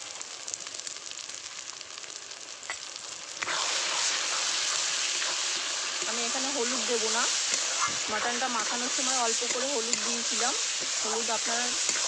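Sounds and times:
paste sizzling in hot oil: 0.0s - 12.0s
metal spatula stirring: 7.4s - 12.0s.

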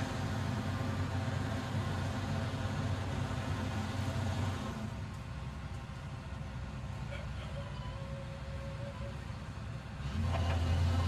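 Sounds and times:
excavator diesel engine running: 0.0s - 11.0s.

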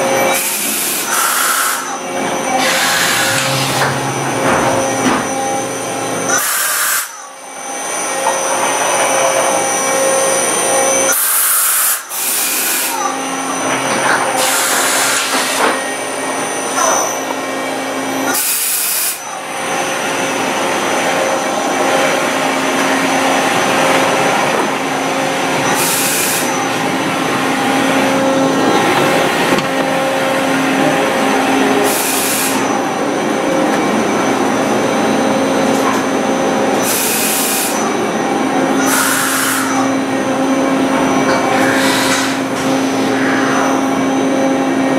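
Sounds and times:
machinery humming: 0.0s - 44.9s.

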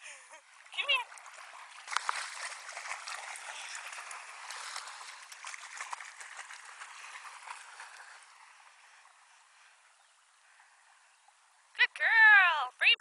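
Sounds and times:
dog splashing through water: 0.6s - 9.2s.

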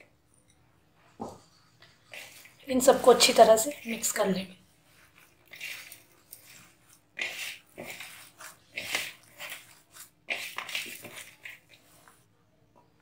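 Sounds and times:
hand squelching wet minced meat: 4.9s - 12.2s.

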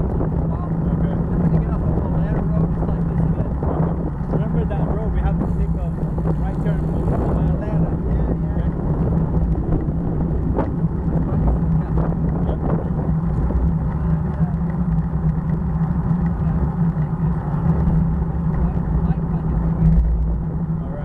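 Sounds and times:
bike tyres rolling on asphalt: 0.0s - 21.0s
wind rumble on microphone: 0.0s - 21.0s.

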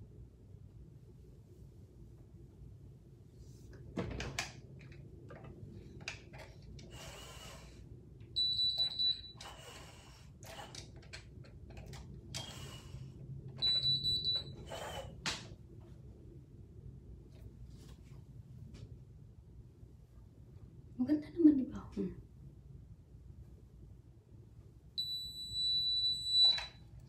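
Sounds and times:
hair curler high beeps: 8.4s - 9.6s, 13.6s - 15.0s, 25.0s - 26.8s.

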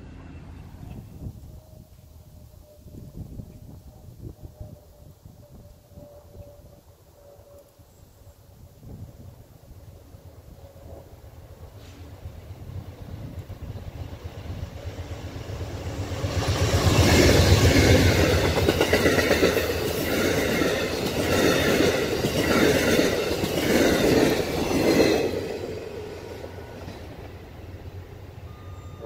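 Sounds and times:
diesel locomotive rumble: 0.0s - 7.1s, 8.8s - 29.0s
train wheels clattering over rail joints: 16.3s - 27.4s.

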